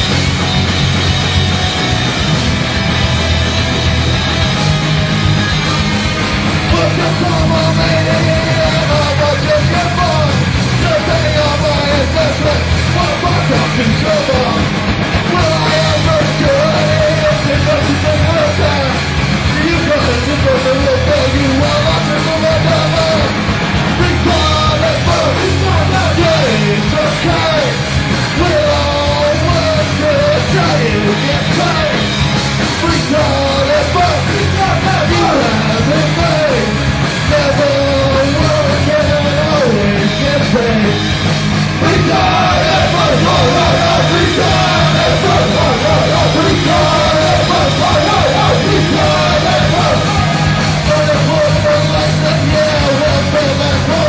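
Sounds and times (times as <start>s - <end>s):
punk rock band playing: 0.0s - 54.0s
vocalist yelling into microphone: 41.8s - 54.0s.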